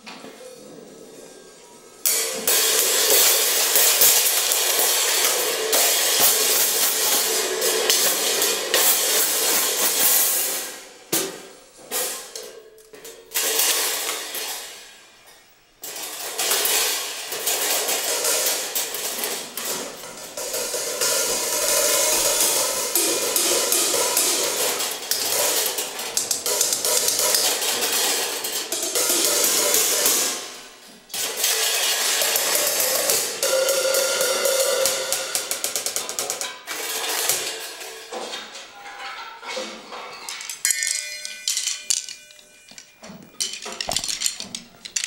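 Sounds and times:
cymbals struck with drumsticks: 0:16.4 - 0:30.6, 0:31.2 - 0:36.4.

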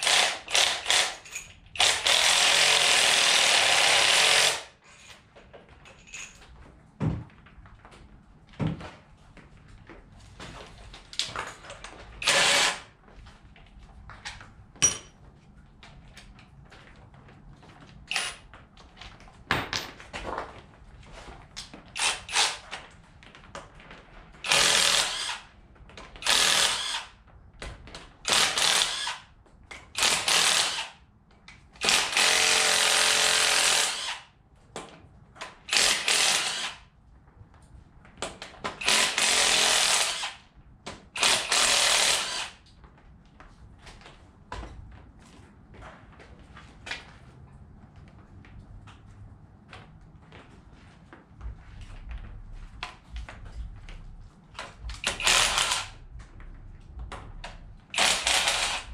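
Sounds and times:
impact wrench bursts: 0:00.0 - 0:04.7, 0:12.2 - 0:12.9, 0:22.0 - 0:22.6, 0:24.4 - 0:25.4, 0:26.2 - 0:27.1, 0:28.3 - 0:29.2, 0:30.0 - 0:31.0, 0:31.8 - 0:34.3, 0:35.7 - 0:36.8, 0:38.8 - 0:40.4, 0:41.2 - 0:42.6, 0:55.0 - 0:56.0, 0:57.9 - 0:58.9.

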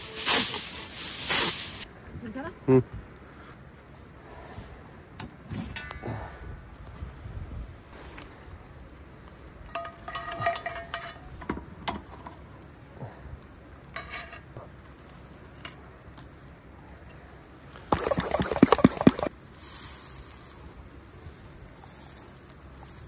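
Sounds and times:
spray bottle spritzing: 0:00.1 - 0:01.8, 0:17.9 - 0:19.3
metal tongs scraping on grill: 0:13.9 - 0:15.8.

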